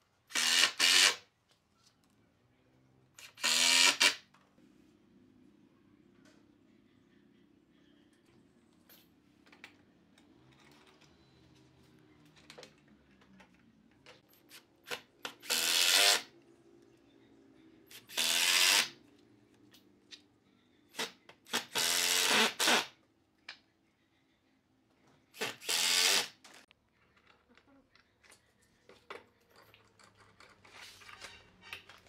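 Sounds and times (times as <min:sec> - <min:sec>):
impact driver driving screws: 0:25.4 - 0:26.4.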